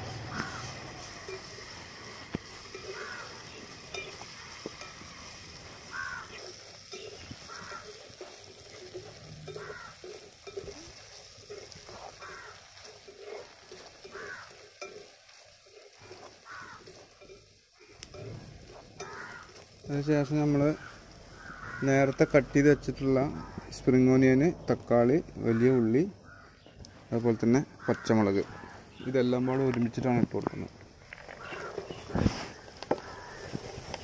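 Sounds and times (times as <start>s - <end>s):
garlic sizzling in hot oil: 0.0s - 34.0s
spatula scraping a metal pan: 0.2s - 19.7s.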